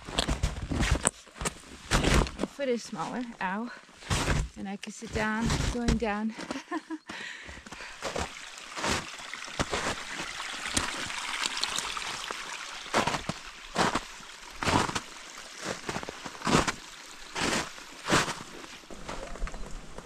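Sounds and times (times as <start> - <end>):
footsteps crunching on frozen snow: 0.0 - 20.0
brook trickling over rocks: 5.0 - 20.0.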